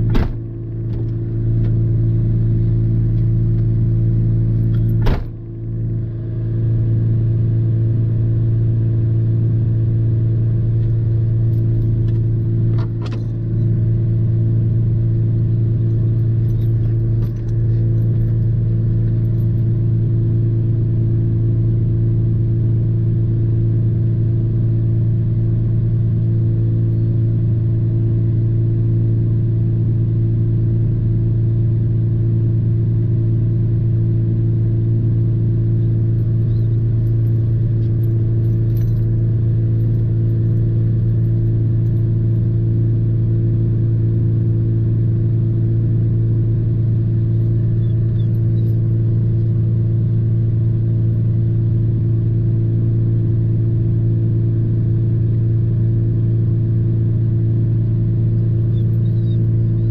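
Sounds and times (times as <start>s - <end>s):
car engine idling: 0.0s - 7.6s, 10.6s - 21.2s, 35.4s - 42.6s.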